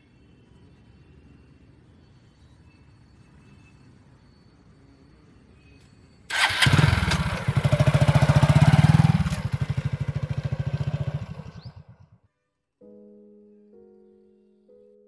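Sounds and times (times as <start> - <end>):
small engine running: 6.3 - 12.1.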